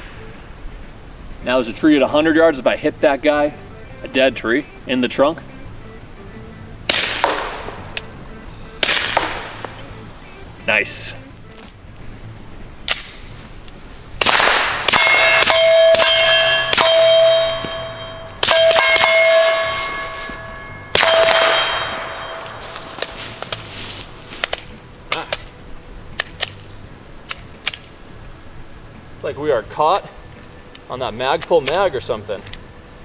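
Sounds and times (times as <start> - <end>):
suppressed pistol shots: 6.9 - 8.1, 8.8 - 9.7, 14.2 - 16.1, 20.9 - 22.4
pistol handling clicks: 12.8 - 13.2, 26.2 - 26.6
long metallic ring: 14.8 - 23.9.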